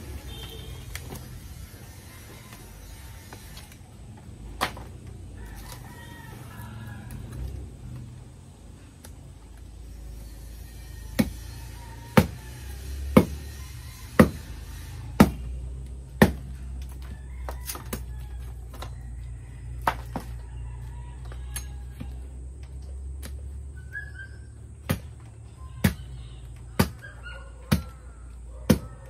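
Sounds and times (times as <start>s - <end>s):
machete chopping wood: 4.6s - 4.9s, 11.2s - 11.4s, 12.1s - 12.4s, 13.1s - 13.5s, 14.1s - 14.5s, 15.1s - 15.5s, 16.1s - 17.0s, 24.8s - 26.1s, 26.8s - 27.0s, 27.7s - 27.9s, 28.7s - 29.0s.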